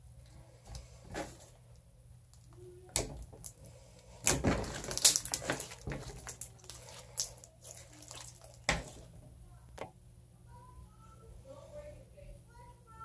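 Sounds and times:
slime crackling and squelching: 2.3s - 9.2s.

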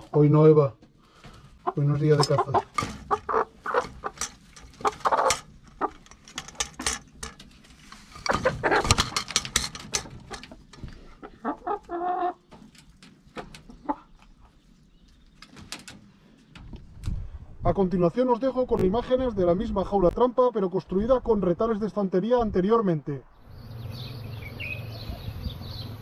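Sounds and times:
chickens clucking: 0.0s - 16.8s.

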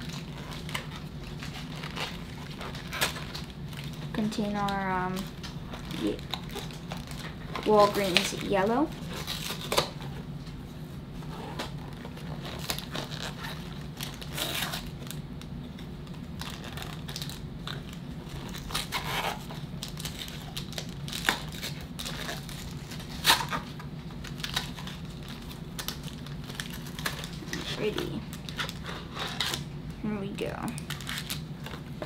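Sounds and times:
plastic wrappers crinkling: 0.0s - 10.4s, 11.2s - 32.0s
steady low hum: 0.0s - 32.0s.

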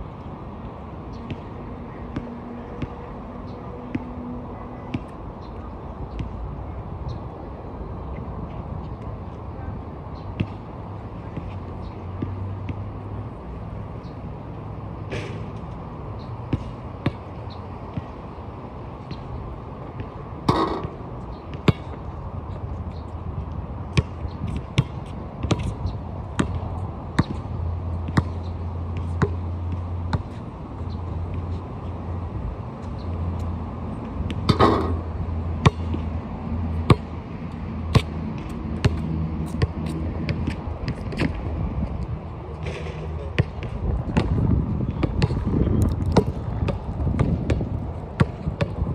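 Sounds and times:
basketball bouncing: 23.9s - 25.7s, 26.3s - 27.4s, 28.0s - 28.4s, 35.6s - 36.1s, 36.9s - 37.1s, 43.4s - 45.5s, 46.1s - 48.8s.

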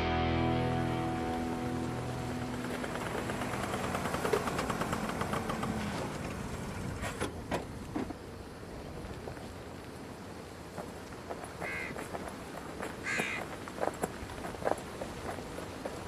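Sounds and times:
music chord ringing out: 0.0s - 4.2s.

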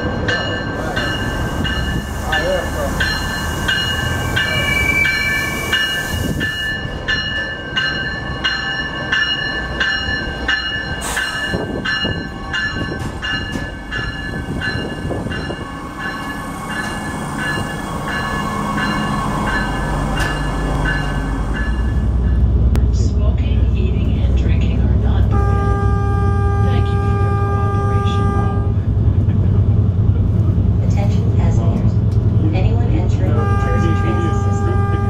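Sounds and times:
bell ringing: 0.0s - 22.4s
train engine and wheels rumbling: 0.0s - 35.0s.

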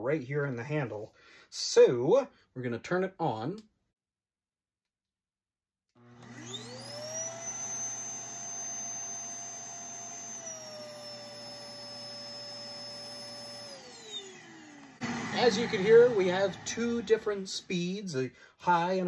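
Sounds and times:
vacuum cleaner motor whine: 6.0s - 17.7s.

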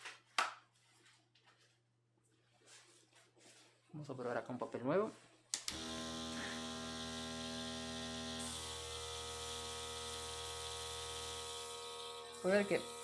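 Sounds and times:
compressor electric hum: 5.6s - 13.0s.

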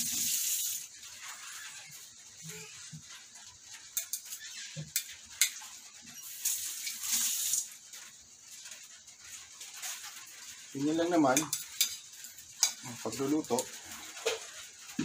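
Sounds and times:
hiss: 0.0s - 0.9s.

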